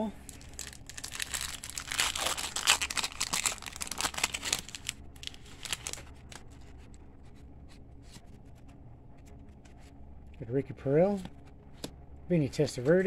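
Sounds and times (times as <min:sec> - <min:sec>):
foil wrapper tearing and crinkling: 0:00.2 - 0:06.4
cards rustling and clicking: 0:00.3 - 0:07.0.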